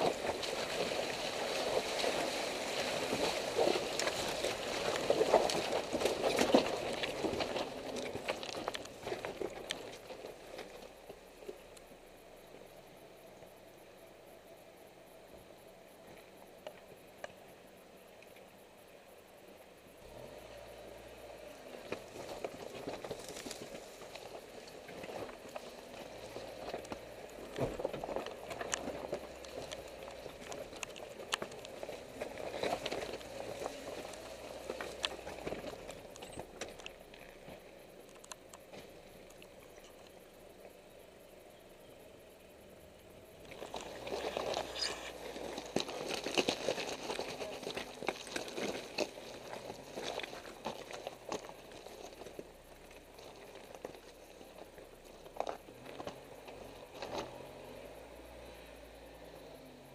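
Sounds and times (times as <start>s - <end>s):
stones crunching under tyres: 0.0s - 11.9s, 20.0s - 40.4s, 43.3s - 58.2s
engine hum: 0.0s - 59.9s.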